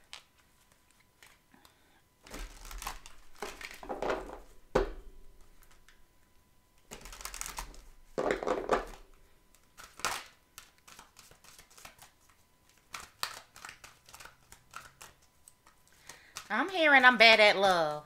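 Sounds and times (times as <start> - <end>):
cards being shuffled: 2.2 - 4.5, 6.9 - 17.2.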